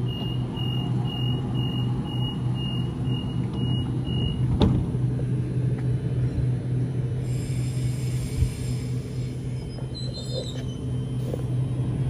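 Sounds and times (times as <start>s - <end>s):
train door warning beeps: 0.0s - 4.6s
train low hum: 0.0s - 12.0s
train doors shutting thud: 4.4s - 5.0s.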